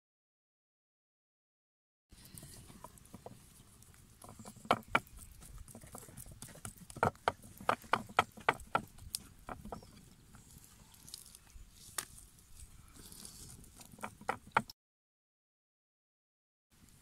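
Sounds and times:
hands patting dough on wood: 4.2s - 10.0s.

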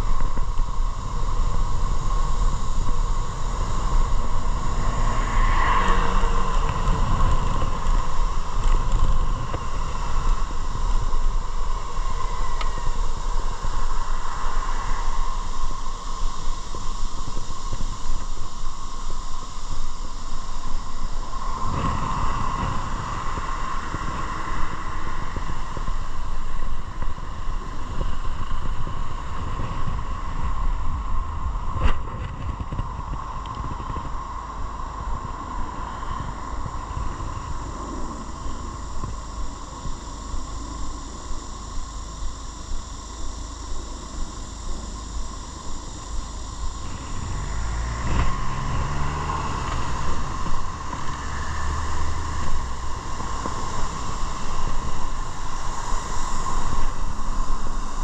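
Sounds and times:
motorcycle engine rumbling: 0.0s - 16.6s, 20.0s - 58.0s.

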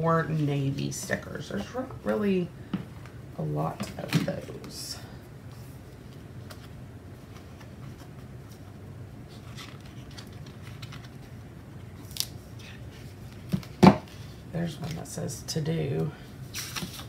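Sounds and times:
paper pages rustling: 5.9s - 15.0s, 16.5s - 17.0s.

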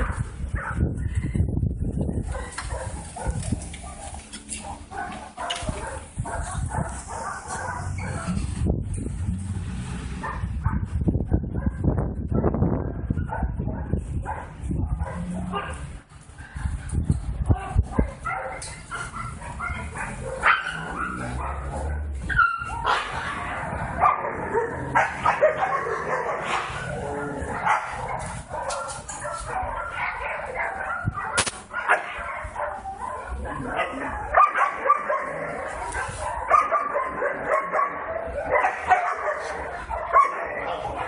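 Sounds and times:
dogs barking and yipping: 0.0s - 8.8s, 9.8s - 41.0s
dogs whimpering: 2.4s - 8.5s, 18.4s - 41.0s.

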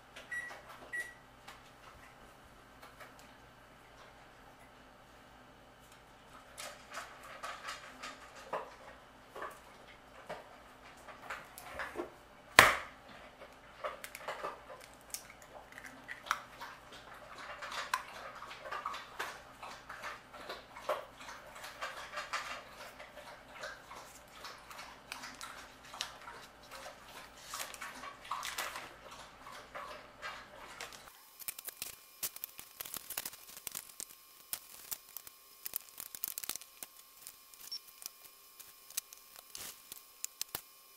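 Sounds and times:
clicks and scrapes of mixing dough: 13.0s - 40.8s.

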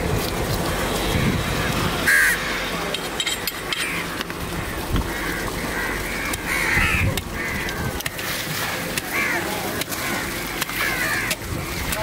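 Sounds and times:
crows cawing: 2.0s - 2.6s, 3.8s - 8.4s, 9.0s - 11.4s.

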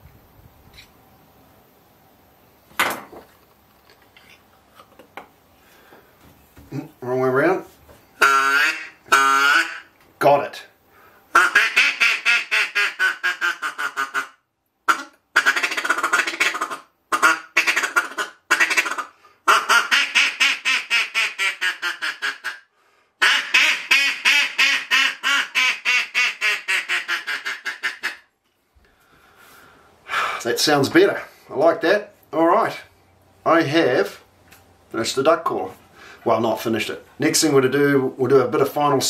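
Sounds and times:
duck call rapid quacks: 8.2s - 9.9s, 11.3s - 28.3s.

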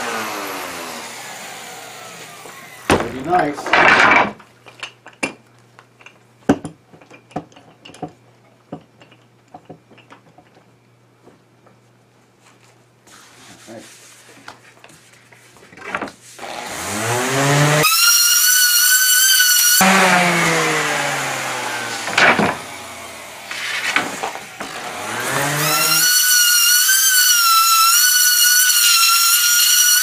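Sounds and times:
orbital sander on wood: 0.0s - 2.9s, 16.4s - 30.0s.

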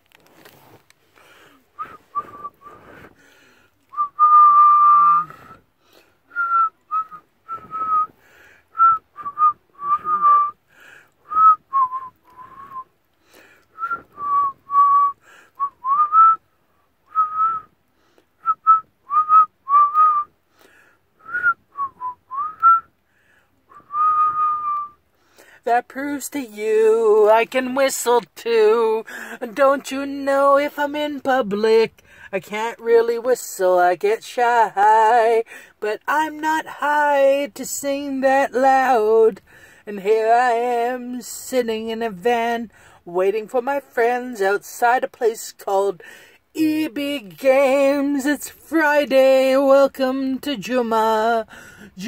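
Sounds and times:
woman whistling a tune: 1.8s - 3.0s, 3.9s - 5.6s, 6.3s - 8.1s, 8.7s - 10.6s, 11.2s - 12.9s, 13.8s - 16.4s, 17.1s - 17.7s, 18.4s - 20.3s, 21.2s - 22.9s, 23.7s - 25.0s.

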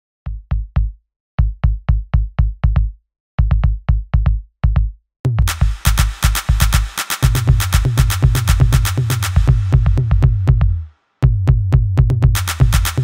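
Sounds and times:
drum machine kick: 0.3s - 13.0s
electronic beat with hi-hats: 0.3s - 13.0s.

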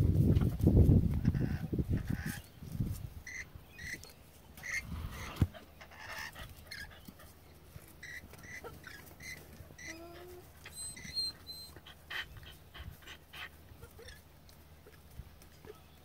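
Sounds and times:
high-pitched animal chirps: 8.0s - 12.6s.

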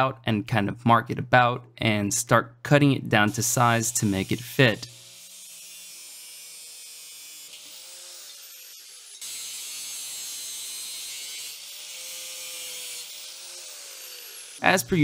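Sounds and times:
angle grinder cutting metal: 3.3s - 15.0s.

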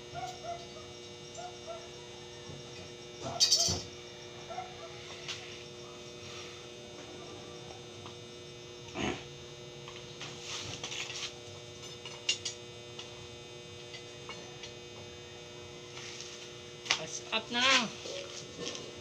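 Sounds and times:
arc welder electrical hum: 0.0s - 19.0s.

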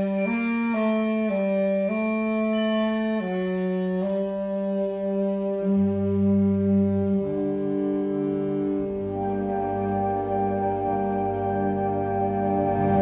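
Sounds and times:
wind band playing held chords: 4.2s - 13.0s.

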